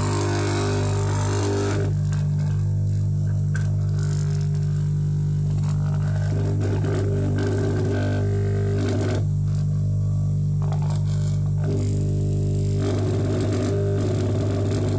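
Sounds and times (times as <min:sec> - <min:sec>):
low electric hum: 0:00.0 - 0:14.9.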